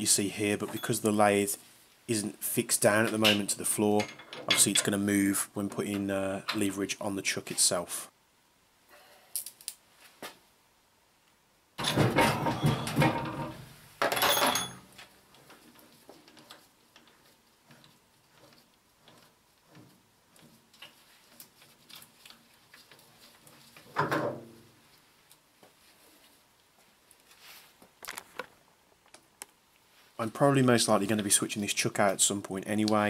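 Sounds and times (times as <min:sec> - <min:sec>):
metal clunking and clattering: 0:11.8 - 0:15.1.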